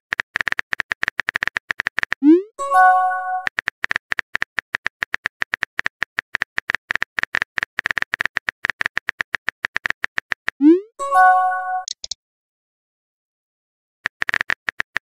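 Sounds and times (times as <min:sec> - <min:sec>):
phone keyboard typing clicks: 0:03.4 - 0:10.6, 0:11.8 - 0:12.2, 0:14.1 - 0:15.0.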